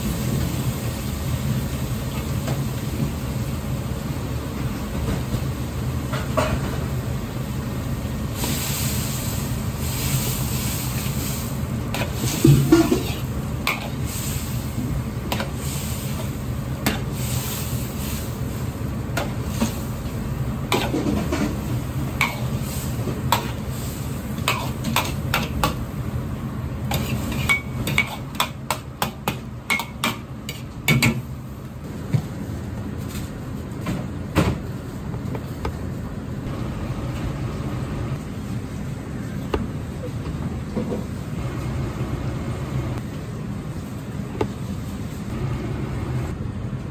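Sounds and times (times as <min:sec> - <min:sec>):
food sizzling in wok: 0:07.0 - 0:29.2
gas burner rushing: 0:07.1 - 0:28.2.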